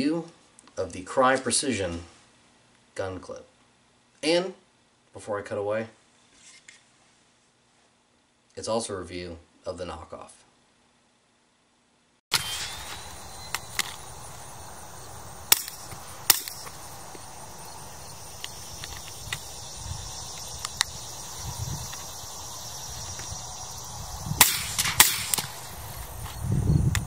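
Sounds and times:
low outdoor rumble: 12.6 - 27.0
sharp clicks and cracks: 15.5 - 16.8, 18.4 - 19.5, 20.3 - 20.9, 24.4 - 25.6.

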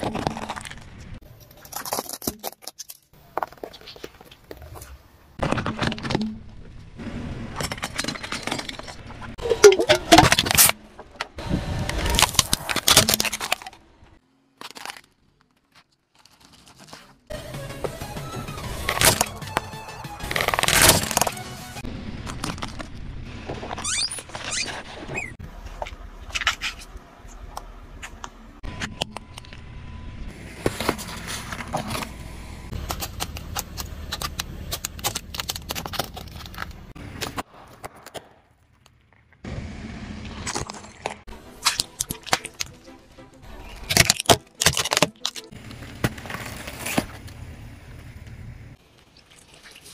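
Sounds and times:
tyre crushing small objects: 0.0 - 6.8, 7.5 - 17.3, 18.7 - 29.6, 30.4 - 39.4, 40.3 - 42.9, 43.5 - 47.6
objects crushed under car tyre: 11.9 - 13.8, 20.2 - 21.5, 43.6 - 47.4.

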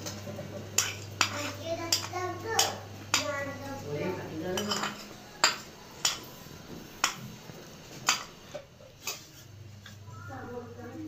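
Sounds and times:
metal utensil clinking on steel pot: 0.8 - 3.3, 4.5 - 6.3.

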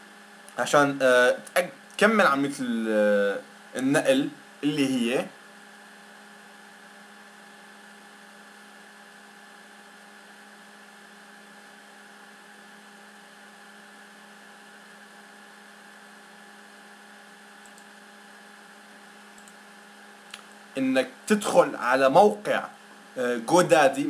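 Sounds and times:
recording hiss: 0.0 - 5.4, 20.2 - 24.0
electrical hum: 0.0 - 24.0.

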